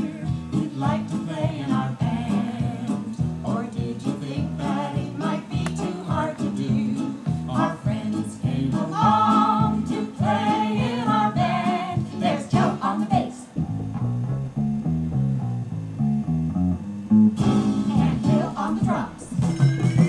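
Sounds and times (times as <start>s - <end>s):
person singing: 0.0s - 13.5s, 17.8s - 19.4s
guitar: 0.0s - 20.0s.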